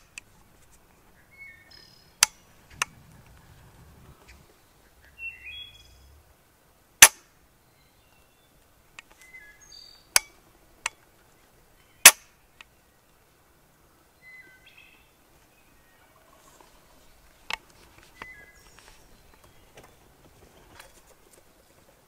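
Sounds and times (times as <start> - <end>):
bird chirps: 1.1 - 6.4, 9.2 - 10.2, 14.2 - 17.2, 18.0 - 20.7.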